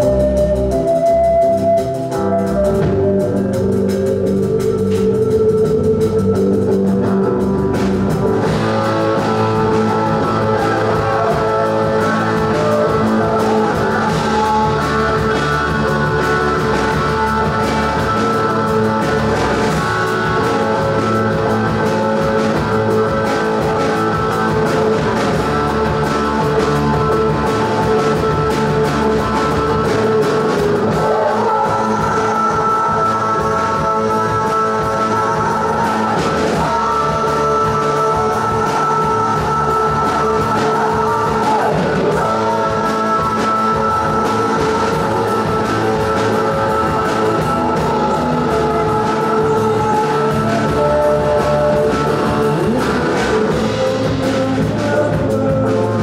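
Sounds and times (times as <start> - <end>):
folk rock band playing: 0.0 - 56.0
wooden flute melody: 0.0 - 56.0.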